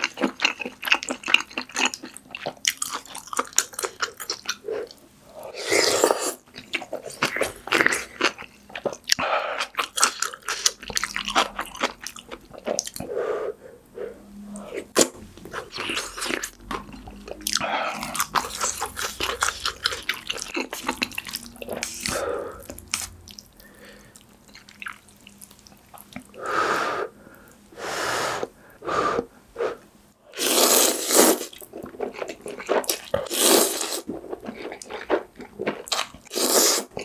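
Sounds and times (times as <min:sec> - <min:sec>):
wet chewing: 0:15.4 - 0:26.4
noodles slurped: 0:30.4 - 0:37.0.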